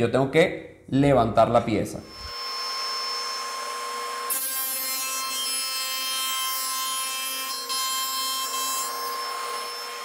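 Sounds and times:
saw blade cutting panel: 2.0 - 10.0
table saw whine: 2.0 - 10.0.

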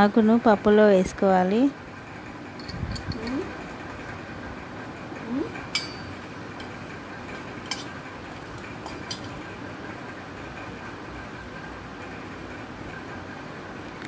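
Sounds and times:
steel colander and pot clinking: 5.7 - 8.0, 8.8 - 9.5.

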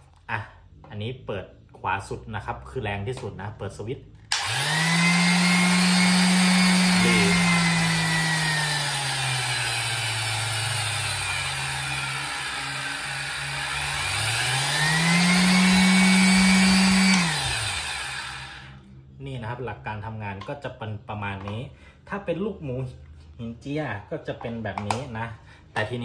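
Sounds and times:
electric sander motor running: 4.3 - 18.8.

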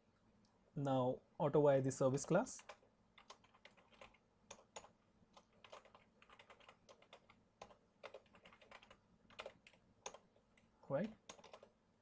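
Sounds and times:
computer keyboard typing: 2.1 - 11.7.

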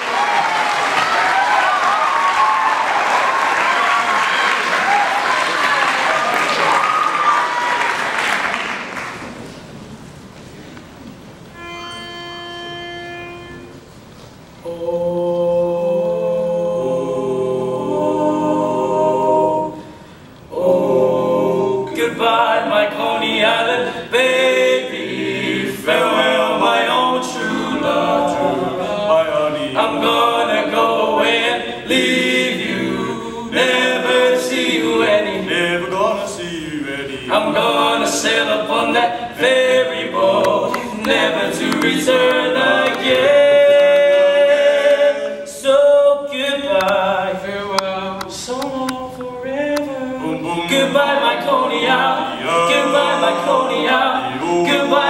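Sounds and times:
applause: 0.0 - 9.4
pitch pipe note: 11.5 - 13.9
male quartet singing in harmony: 14.6 - 55.0.

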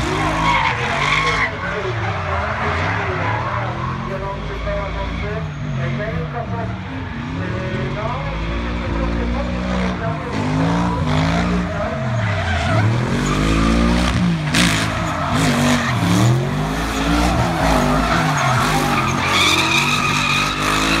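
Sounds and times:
tyres screeching: 0.0 - 6.0, 10.1 - 21.0
car engines revving: 0.0 - 21.0.

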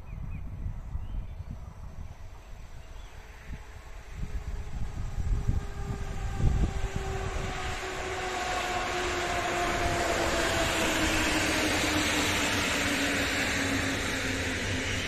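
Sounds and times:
faint descending whine: 0.7 - 15.0
train wheels on rails: 5.6 - 15.0.

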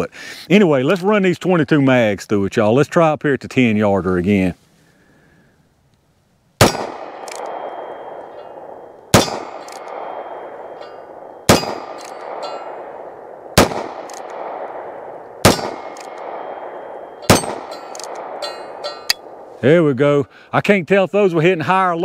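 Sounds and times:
revolver gunshots with echo: 6.6 - 19.5
faint revolver clicks: 6.7 - 12.8, 13.6 - 14.9, 15.5 - 16.8, 17.4 - 18.4.

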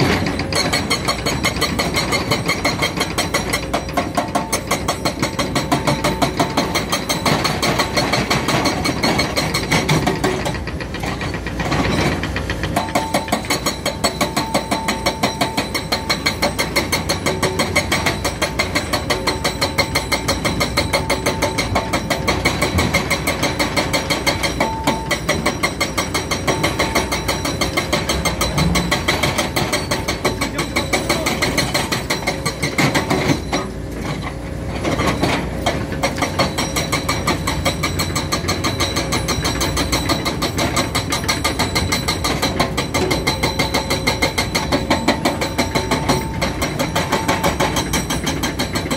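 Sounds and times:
excavator diesel engine clattering: 0.0 - 48.9.

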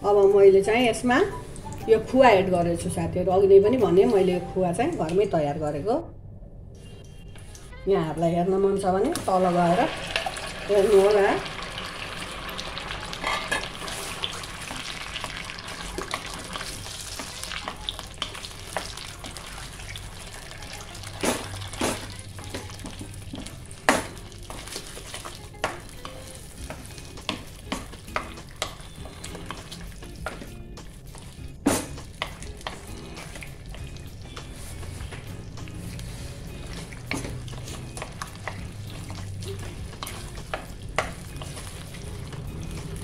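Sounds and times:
milk solids sizzling in ghee: 9.2 - 43.0
wooden spatula stirring: 9.2 - 43.0.

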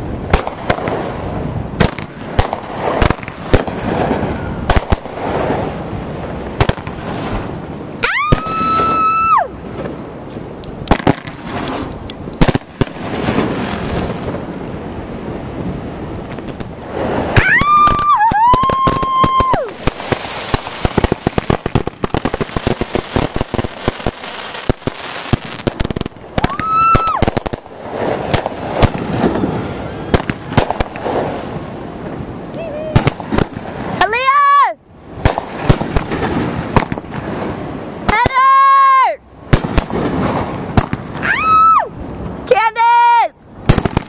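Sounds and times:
firework bangs: 0.0 - 10.0, 10.8 - 14.6, 15.6 - 32.2, 32.9 - 34.3, 35.1 - 38.7, 39.4 - 42.2, 43.6 - 44.0
whistling fireworks: 0.3 - 9.8, 10.8 - 14.6, 15.6 - 31.8, 32.6 - 34.3, 35.2 - 38.9, 39.5 - 42.1, 43.6 - 44.0
spark fountain crackling: 10.8 - 14.0, 16.1 - 31.6.

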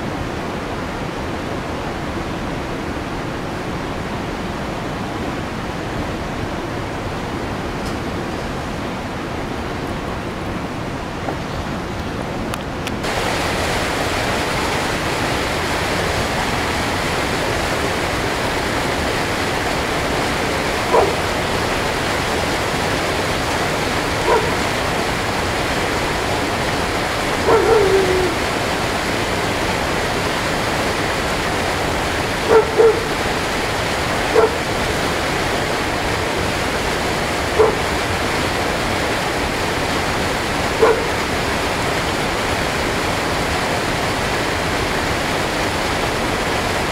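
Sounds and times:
water rushing: 0.0 - 46.9
dog barking: 20.9 - 21.2, 24.2 - 24.6, 27.4 - 28.4, 32.5 - 33.1, 34.3 - 34.6, 37.6 - 37.9, 40.8 - 41.2.

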